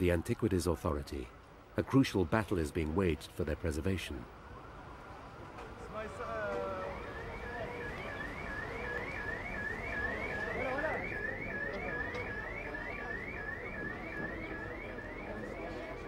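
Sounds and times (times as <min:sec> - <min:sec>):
electronic siren sweep: 0:06.6 - 0:16.0.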